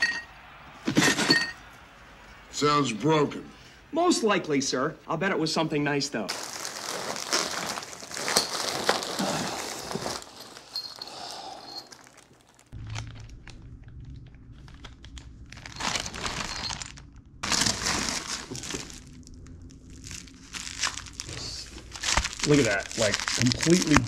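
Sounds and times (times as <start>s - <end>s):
packing paper and bubble wrap rustling: 6.3s - 24.0s.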